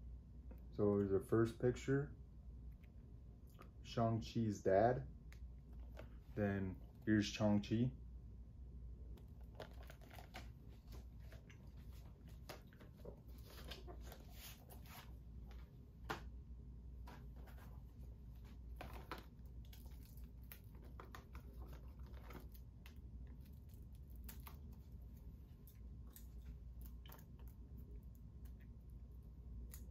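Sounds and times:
low steady hum: 0.0 - 29.9
disc case and paper rustling: 18.4 - 22.6.

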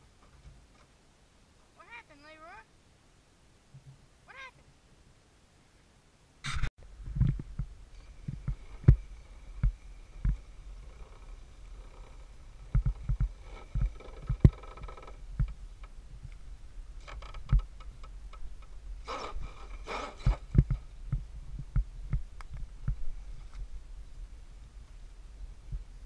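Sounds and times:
rough scrabbling of tyres: 6.4 - 15.6, 17.0 - 21.0.

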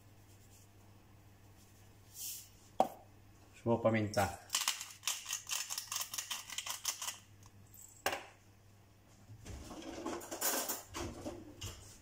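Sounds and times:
pepper mill grinding clicks: 4.5 - 7.2
cutlery clattering: 9.8 - 11.2.

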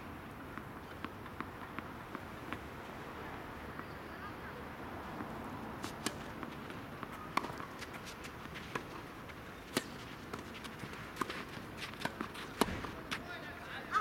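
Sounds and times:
tennis ball hit by racket: 5.8 - 9.1, 9.7 - 13.3.

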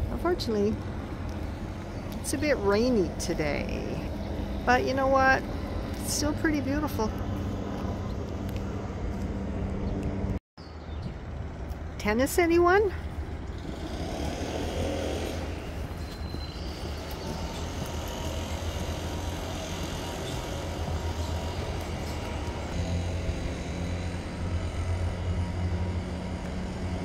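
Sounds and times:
traffic on wet road: 13.6 - 16.0, 17.1 - 27.0.

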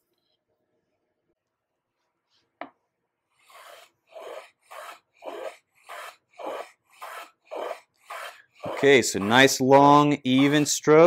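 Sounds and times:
hand plane shaving rasps: 3.4 - 11.0.

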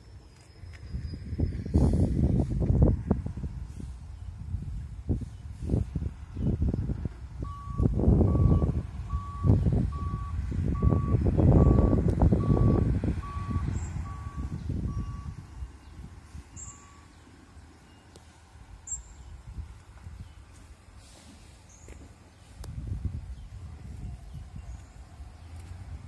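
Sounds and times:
heavy low rumble: 0.8 - 16.8
truck reversing alarm beeping: 7.3 - 18.1.

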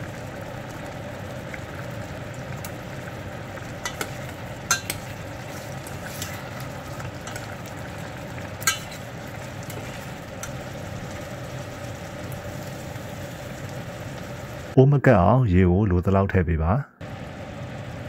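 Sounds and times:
sauce bubbling and sizzling: 0.0 - 14.8, 17.0 - 18.0
metal spoon clinking against pot: 3.8 - 5.2, 8.6 - 9.1.

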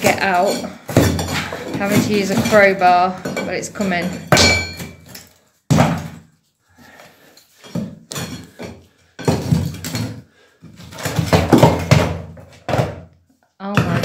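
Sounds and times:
brick chunks knocking onto hearth: 10.9 - 13.1.

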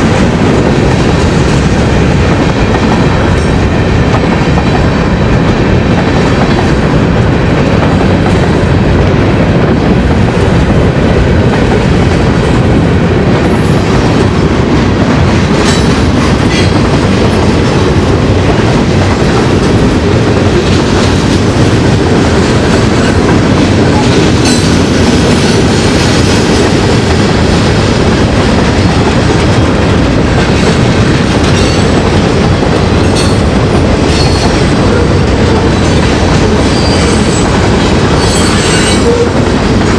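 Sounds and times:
high wheel squeal: 38.1 - 39.3.

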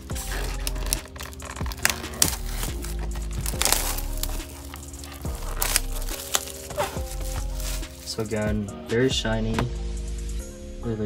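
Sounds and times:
plastic wrapping crinkling: 0.0 - 8.4
background music with beat: 0.0 - 11.0.

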